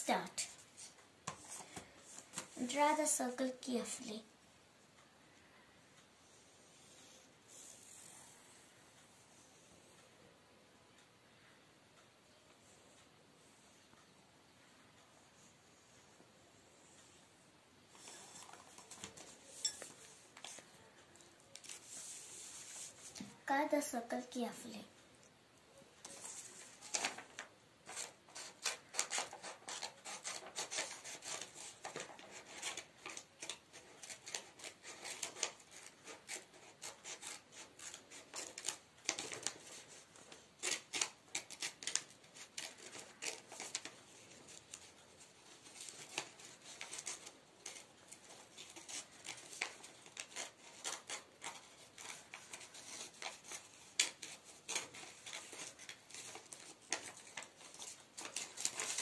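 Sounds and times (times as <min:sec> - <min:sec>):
scissors snipping paper: 0:26.0 - 0:59.0.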